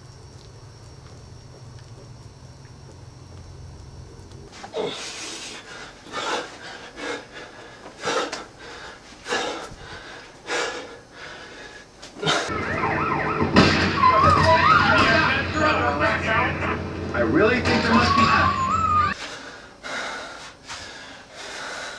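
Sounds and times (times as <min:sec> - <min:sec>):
steady wavering tone: 0:12.5 - 0:19.2.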